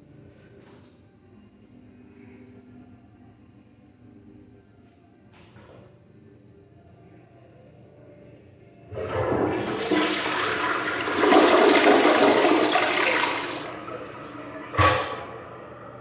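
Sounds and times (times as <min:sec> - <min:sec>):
toilet flushing: 0:08.9 - 0:16.0.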